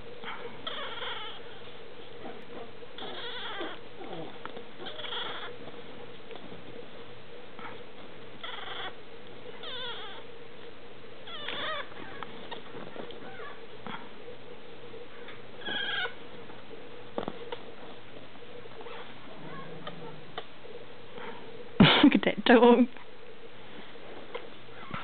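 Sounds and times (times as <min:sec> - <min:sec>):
puppy squeaking cries: 0:00.6 - 0:01.6, 0:03.0 - 0:03.8, 0:04.8 - 0:05.5, 0:09.6 - 0:10.2, 0:11.3 - 0:12.2, 0:15.6 - 0:16.2.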